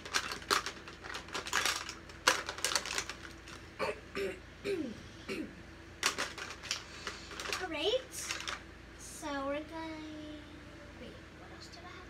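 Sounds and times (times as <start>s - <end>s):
plastic cases clattering: 0.0s - 3.7s, 6.0s - 8.6s.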